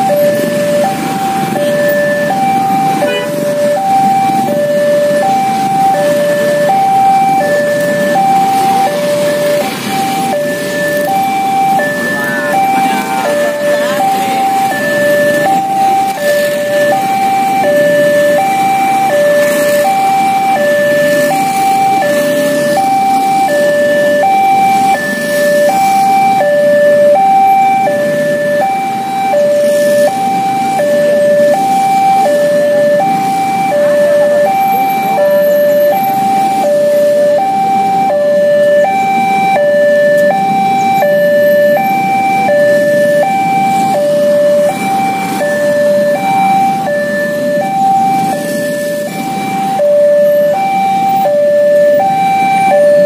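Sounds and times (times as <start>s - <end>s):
motorbikes and cars idling: 0.0s - 53.0s
two-tone level crossing alarm: 0.0s - 53.0s.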